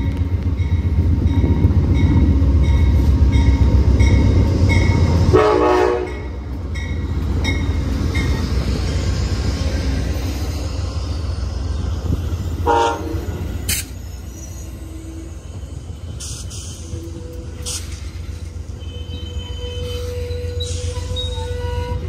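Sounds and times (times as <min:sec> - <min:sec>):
train clicks: 0:00.0 - 0:10.6, 0:13.5 - 0:14.0, 0:15.6 - 0:19.2
train cars rumbling past: 0:00.0 - 0:22.0.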